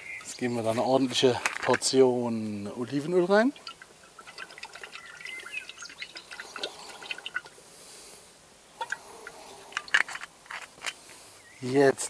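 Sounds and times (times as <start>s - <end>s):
oil pouring and pattering into a pan: 2.6s - 7.5s.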